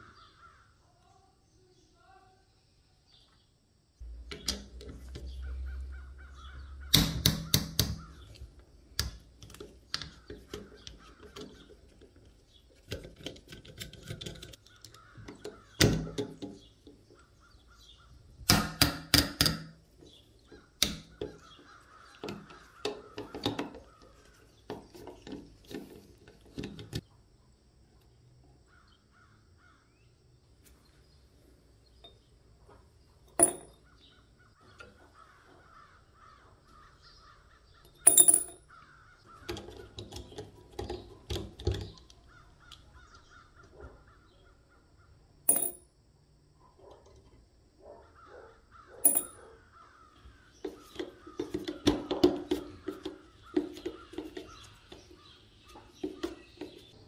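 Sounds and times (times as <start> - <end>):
metallic tool clicks and knocks: 33.4 - 33.8, 38.0 - 38.6, 45.5 - 45.8, 49.0 - 49.4.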